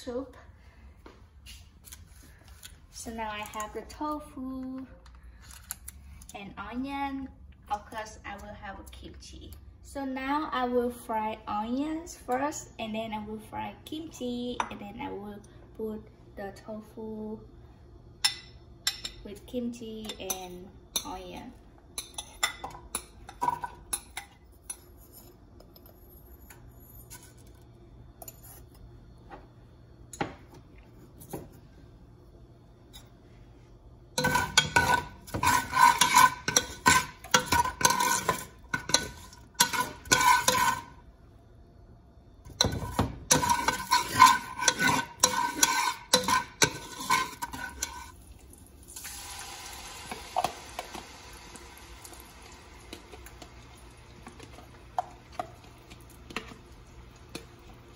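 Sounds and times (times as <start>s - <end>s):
metal spatula scraping a pot: 34.2s - 41.0s, 42.6s - 48.2s
food sizzling in hot oil: 43.3s - 54.2s.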